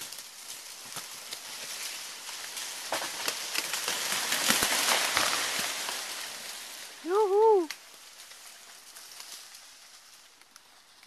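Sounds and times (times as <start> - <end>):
fronds rustling and snapping: 0.0 - 11.0
palm tree falling through brush: 0.0 - 11.0.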